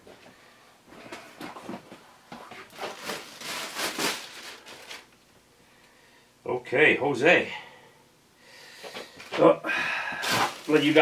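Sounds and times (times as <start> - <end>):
plastic bag crinkling: 2.5 - 5.2, 10.2 - 11.0
fabric rustling: 10.2 - 11.0.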